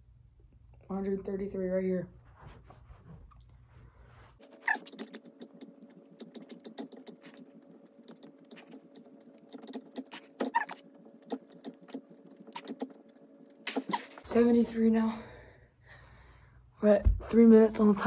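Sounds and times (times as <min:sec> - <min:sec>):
steady hum: 0:00.0 - 0:18.0.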